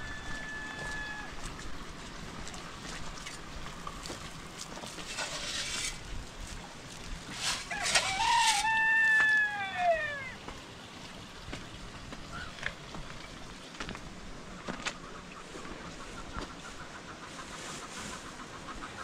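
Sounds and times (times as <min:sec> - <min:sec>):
rooster crowing: 0:00.0 - 0:01.4, 0:07.6 - 0:10.4.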